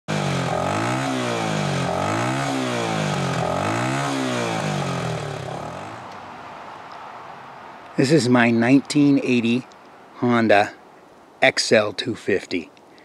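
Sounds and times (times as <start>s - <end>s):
motorcycle engine revving: 0.1s - 6.2s.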